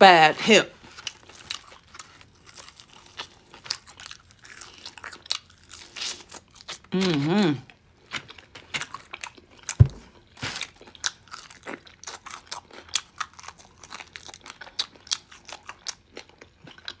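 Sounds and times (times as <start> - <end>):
crunching and chewing fried chicken: 0.7 - 17.0
loud thump: 9.8 - 10.0.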